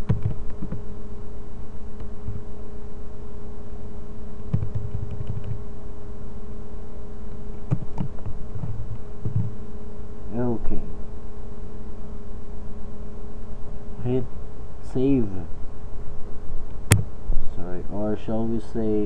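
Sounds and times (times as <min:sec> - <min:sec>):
computer keyboard keystrokes: 0:00.0 - 0:00.8, 0:04.5 - 0:05.6, 0:07.7 - 0:09.5
steady electrical hum: 0:00.0 - 0:19.0.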